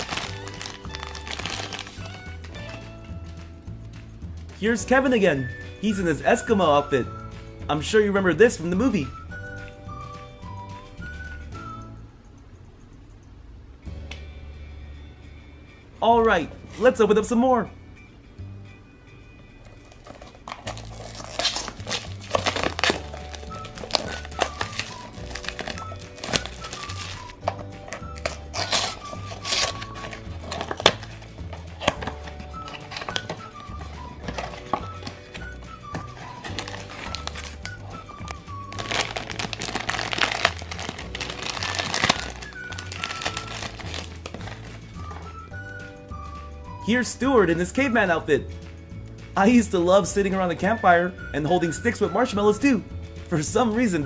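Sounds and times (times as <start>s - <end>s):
cardboard box crinkling and scraping: 0.0s - 2.0s, 20.1s - 27.4s, 28.2s - 31.1s, 36.2s - 37.7s, 38.7s - 44.8s
background music with bass line: 0.0s - 12.1s, 20.7s - 54.0s.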